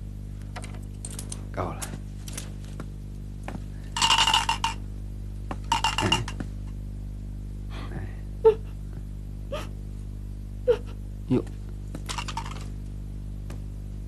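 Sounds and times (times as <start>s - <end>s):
coins clinking on wooden table: 4.0s - 4.8s, 5.7s - 6.4s, 12.1s - 12.7s.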